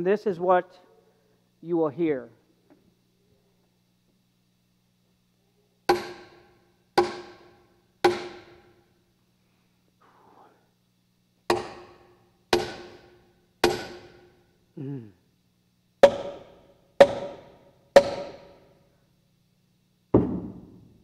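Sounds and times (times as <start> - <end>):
hammer striking a nail into wood: 5.9 - 8.7, 11.5 - 14.4, 16.0 - 18.6.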